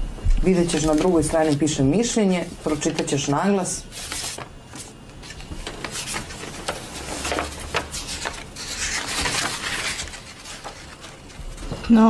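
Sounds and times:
paper rustling and crackling: 0.5s - 12.0s.

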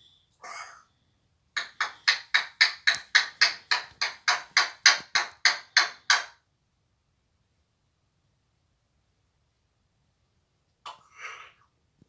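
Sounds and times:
parrot making harsh raspy calls: 0.4s - 1.0s, 1.6s - 6.4s, 10.9s - 11.7s.

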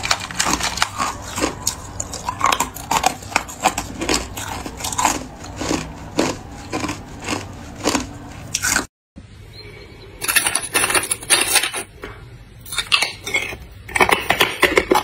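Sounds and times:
ice cubes crunching in teeth: 0.0s - 8.9s.

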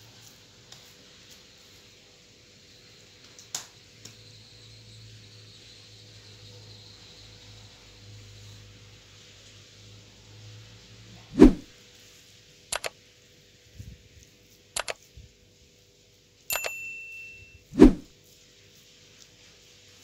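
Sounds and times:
mouse clicks: 12.7s - 12.9s, 14.8s - 15.0s
bell ding: 16.5s - 17.7s.

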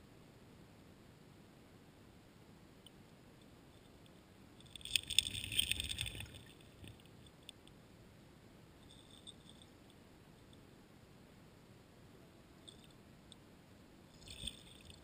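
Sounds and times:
gravel clattering underwater: 4.6s - 7.2s, 14.2s - 15.0s.

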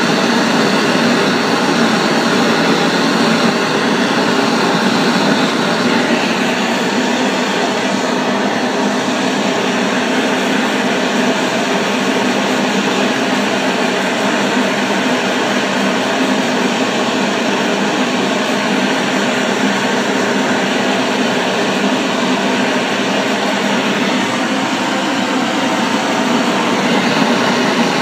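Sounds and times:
blowtorch hissing: 0.0s - 28.0s.

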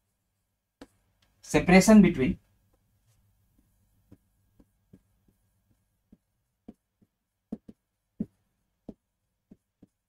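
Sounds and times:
pen tapping on glass whiteboard: 3.5s - 10.0s.

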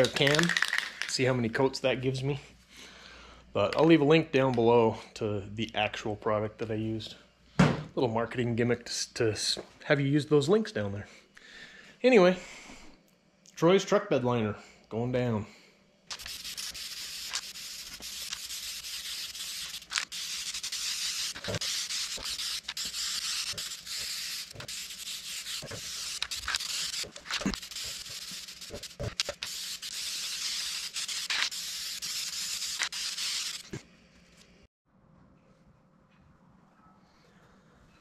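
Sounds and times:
spray can clicks: 0.0s - 1.2s
aerosol can spraying: 16.1s - 33.8s.

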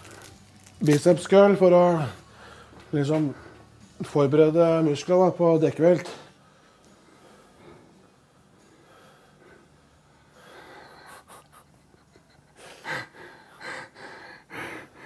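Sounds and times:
man breathing hard: 2.2s - 3.9s, 6.4s - 11.8s, 12.5s - 15.0s.

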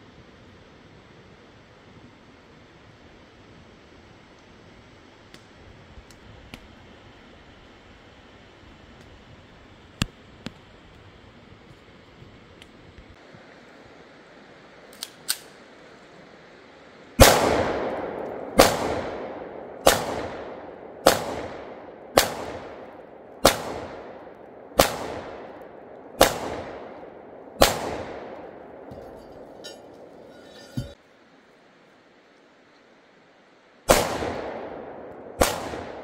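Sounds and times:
pistol shots with echo: 17.2s - 28.9s, 33.9s - 36.0s.

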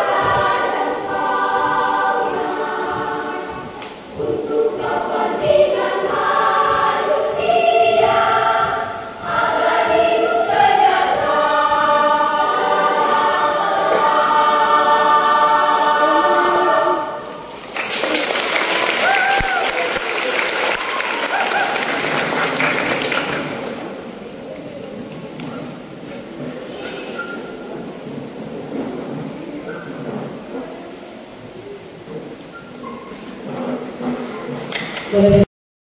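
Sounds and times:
children's choir singing: 0.0s - 24.4s, 25.5s - 35.4s
audience applause: 17.6s - 23.9s.

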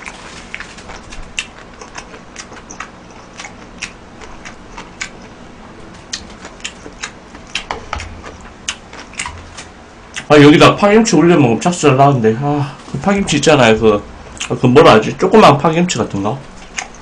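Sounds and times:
close chewing and lip-smacking: 0.0s - 10.3s, 14.4s - 14.6s, 16.5s - 17.0s.

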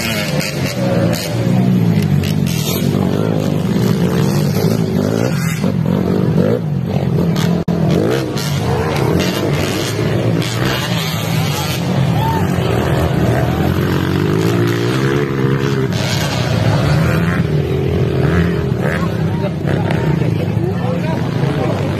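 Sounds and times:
motorcycle engines revving: 0.0s - 21.9s.

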